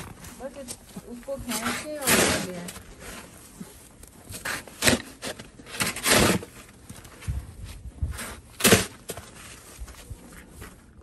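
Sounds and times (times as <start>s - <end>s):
plastic snow shovel scraping snow: 1.2s - 6.8s, 8.1s - 9.6s.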